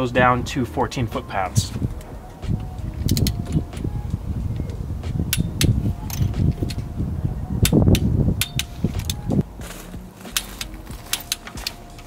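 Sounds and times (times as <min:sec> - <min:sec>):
torque wrench clicks: 0:03.0 - 0:03.8, 0:05.3 - 0:06.8, 0:07.6 - 0:09.2, 0:10.4 - 0:11.8
low rumble of tool handling: 0:07.9 - 0:12.0.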